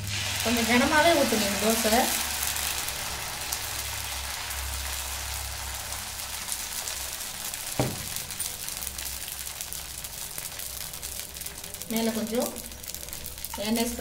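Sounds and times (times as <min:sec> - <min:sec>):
batter sizzling on griddle: 0:00.0 - 0:14.0
knock: 0:07.8 - 0:08.1.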